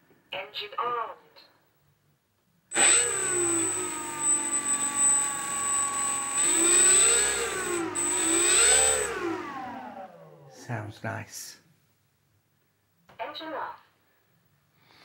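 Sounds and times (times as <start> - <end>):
model plane motor whirring: 2.7 - 10.2
steady high whine: 2.7 - 10.9.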